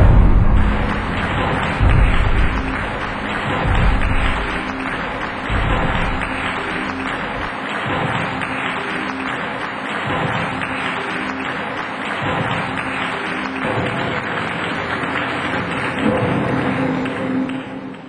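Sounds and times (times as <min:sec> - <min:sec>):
audience applauding: 0:00.0 - 0:18.0
background music: 0:00.0 - 0:18.0.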